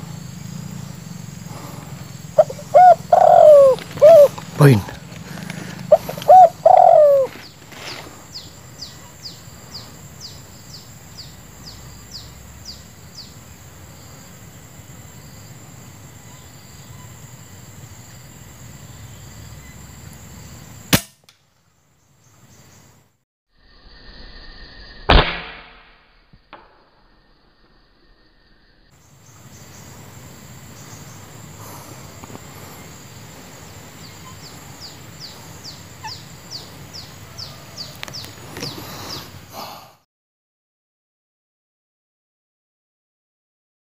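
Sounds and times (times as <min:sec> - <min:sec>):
bird cooing: 0:01.5 - 0:08.0
fast high bird chirps: 0:02.4 - 0:04.8, 0:05.8 - 0:07.6
air rifle shot: 0:20.9 - 0:21.2, 0:25.1 - 0:26.0.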